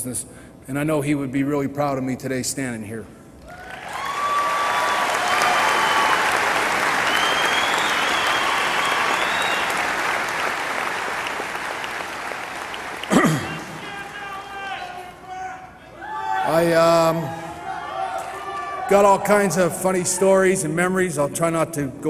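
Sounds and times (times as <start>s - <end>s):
audience applauding: 3.5s - 15.0s.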